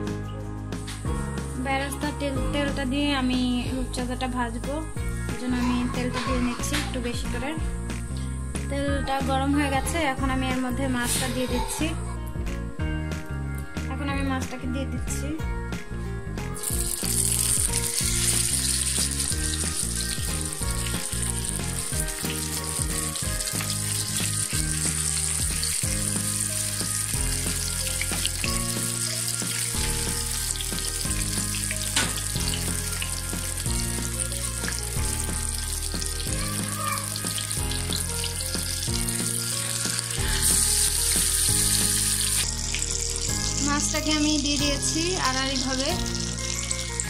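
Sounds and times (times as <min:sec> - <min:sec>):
fish sizzling in oil: 0:16.6 - 0:47.0.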